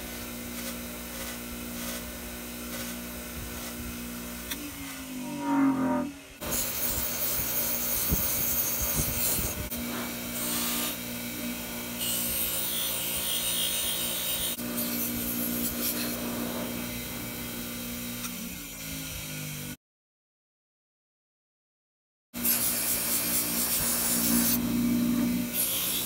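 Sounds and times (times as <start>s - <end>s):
bench grinder motor hum: 0.0s - 19.8s, 22.4s - 26.0s.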